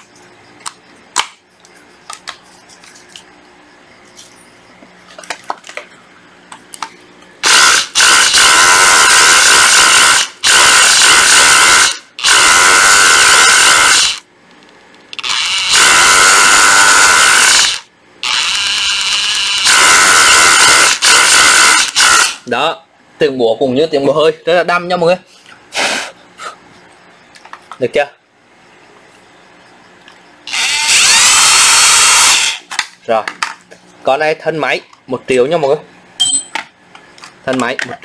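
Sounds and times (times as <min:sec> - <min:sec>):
rotary hammer drilling into wood: 0:07.4 - 0:14.2, 0:15.2 - 0:22.4, 0:30.5 - 0:32.7.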